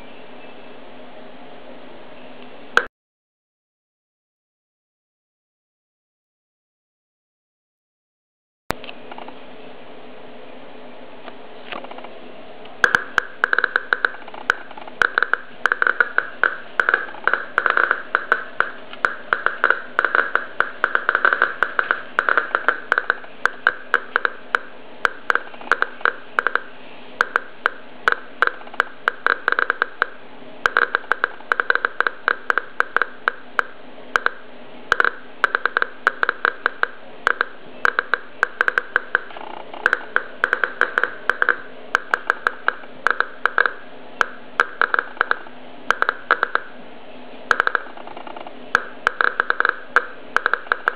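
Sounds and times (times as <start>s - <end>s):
radiation meter clicking: 12.8s - 46.7s, 47.5s - 50.9s.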